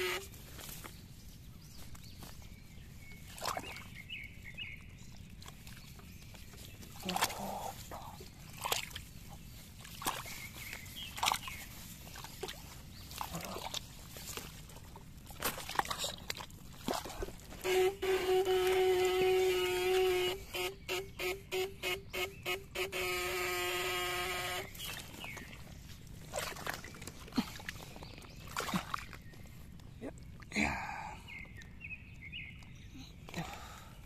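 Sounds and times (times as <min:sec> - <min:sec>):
boots splashing through muddy water: 0:00.2 - 0:18.9, 0:24.6 - 0:31.8.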